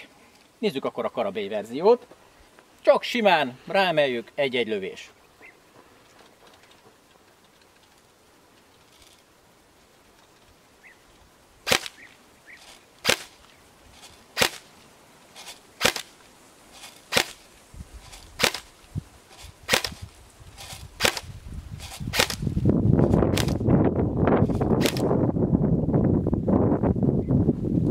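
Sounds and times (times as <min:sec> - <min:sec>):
airsoft gun shots: 0:11.7 - 0:12.1, 0:13.0 - 0:13.4, 0:14.4 - 0:14.7, 0:15.8 - 0:16.1, 0:17.1 - 0:17.4, 0:18.4 - 0:18.7, 0:19.7 - 0:20.0, 0:21.0 - 0:21.3, 0:22.1 - 0:22.5, 0:23.3 - 0:23.6, 0:24.8 - 0:25.1.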